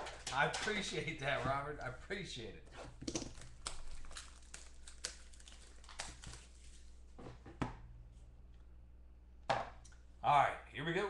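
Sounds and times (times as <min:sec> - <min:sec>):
plastic shrink wrap tearing: 0:03.0 - 0:06.9.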